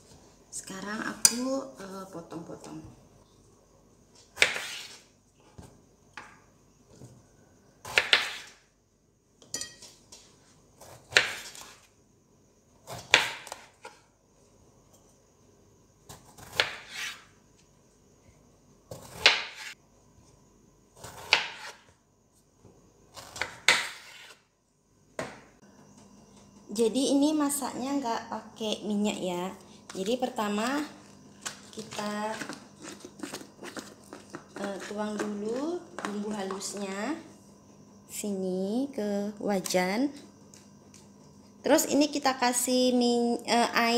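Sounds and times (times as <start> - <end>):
knife cutting on wooden board: 4.4 - 5.0, 7.9 - 8.6, 16.4 - 17.3, 21.0 - 21.8, 23.2 - 24.4.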